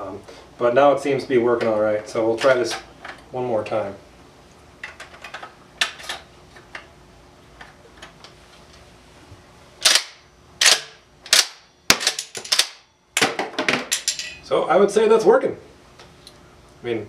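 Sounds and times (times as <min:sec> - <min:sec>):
shotgun slide racking clacks: 0:09.8 - 0:12.8.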